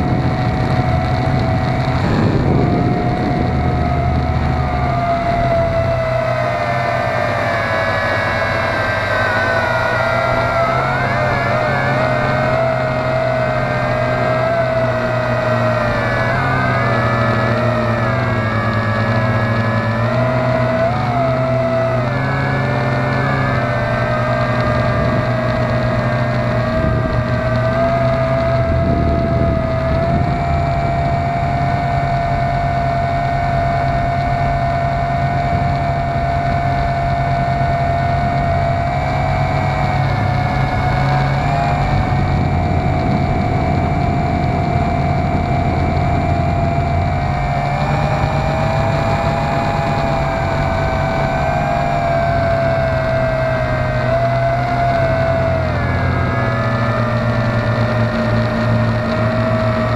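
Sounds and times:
low rumble: 0.0s - 59.9s
quadcopter propellers whining: 0.0s - 59.9s.

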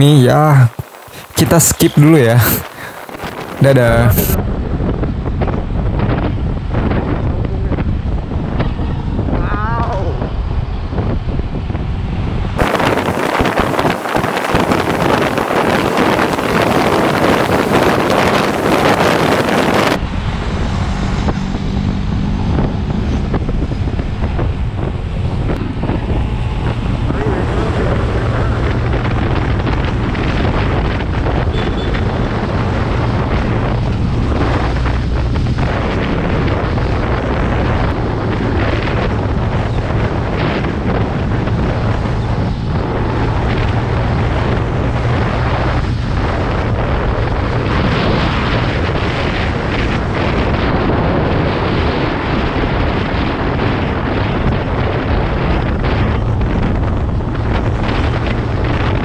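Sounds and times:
wind buffeting microphone: 0.0s - 59.0s
scooter engine hum: 7.0s - 35.4s.

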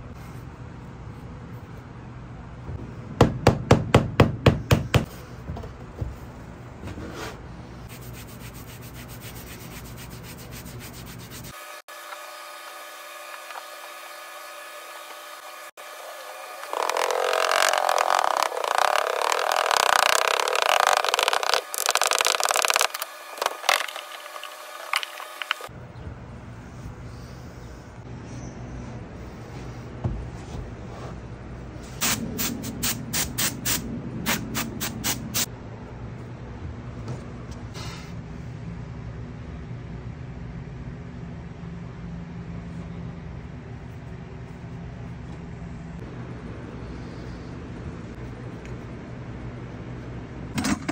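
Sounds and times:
gloved hands rubbing sand: 7.9s - 11.6s, 16.6s - 25.7s
faint hum: 15.4s - 33.2s, 35.5s - 50.9s.

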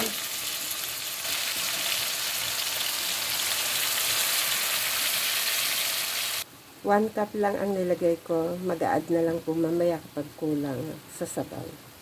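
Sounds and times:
food sizzling in oil: 0.0s - 6.5s.

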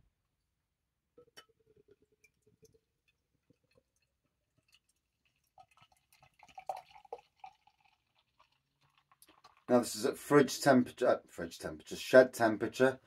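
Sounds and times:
beer pouring into glass: 1.2s - 10.6s.

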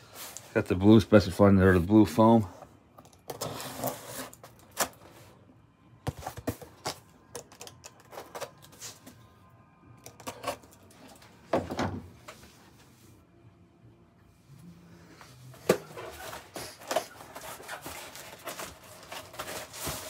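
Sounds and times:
cardboard packaging rustling: 15.6s - 20.0s.

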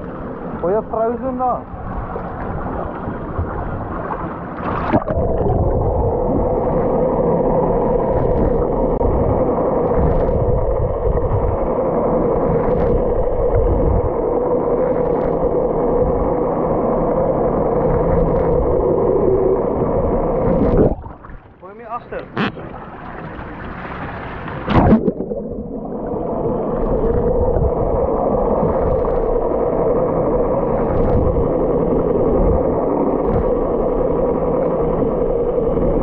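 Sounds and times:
muffled underwater rushing water: 0.0s - 36.0s
camera splashing into water: 24.6s - 25.4s.

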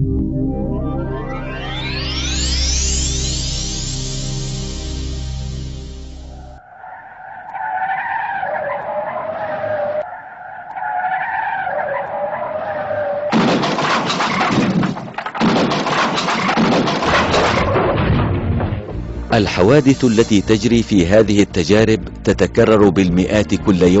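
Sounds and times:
car tyres screeching: 6.2s - 14.6s
car crash crunching metal: 11.4s - 19.0s.

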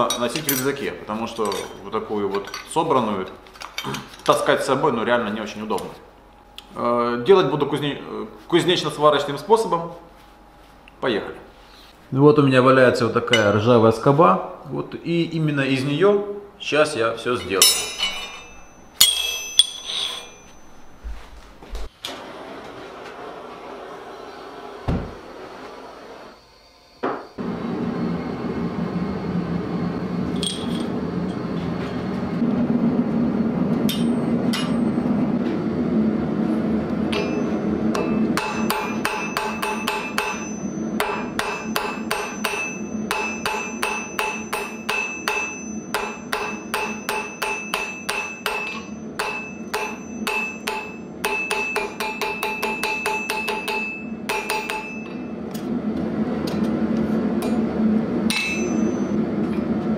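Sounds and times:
hammer beating steel on anvil: 17.6s - 21.0s, 33.9s - 34.9s, 37.1s - 55.3s, 58.3s - 59.1s
gas forge burner roaring: 21.9s - 59.9s.

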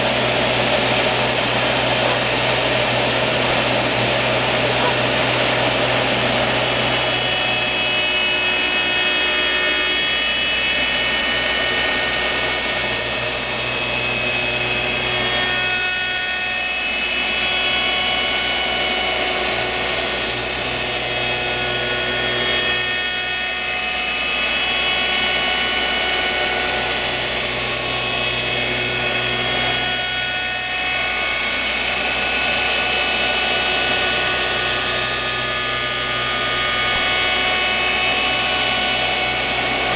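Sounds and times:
cutter spindle whining: 0.0s - 39.9s.

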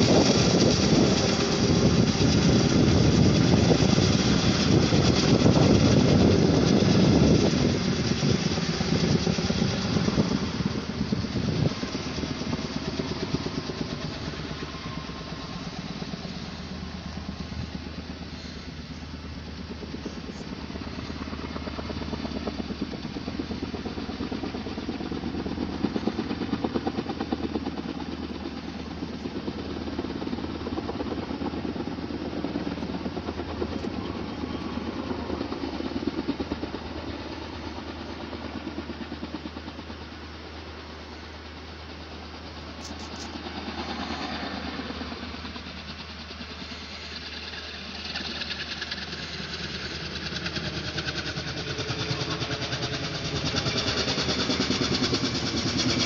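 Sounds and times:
engine running with pulsing beat: 41.8s - 56.0s.

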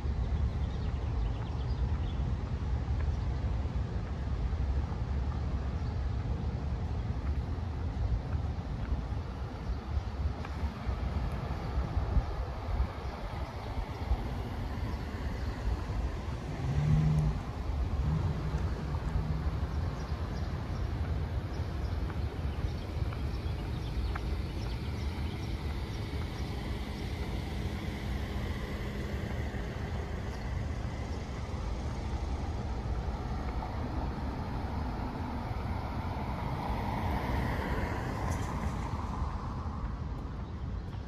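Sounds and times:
traffic rumble: 0.0s - 41.0s
wind: 0.0s - 41.0s
car passing by: 10.4s - 41.0s.

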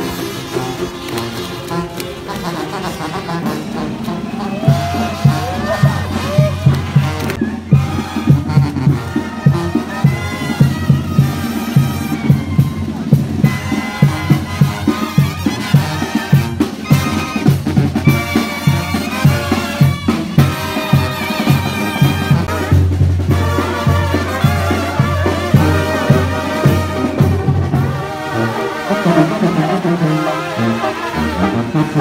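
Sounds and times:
brass band music: 0.0s - 32.0s
steady drum beat: 4.6s - 28.1s.

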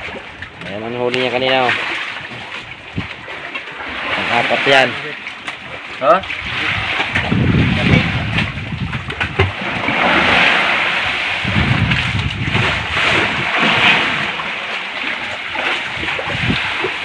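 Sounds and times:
sea water splashing around boat: 0.0s - 17.0s
wind on microphone: 2.2s - 4.4s, 6.2s - 14.5s, 15.2s - 17.0s.

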